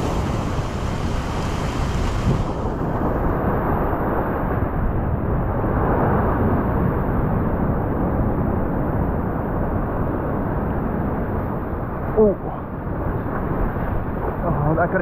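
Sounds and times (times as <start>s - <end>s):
surf breaking on rocks: 0.0s - 11.2s.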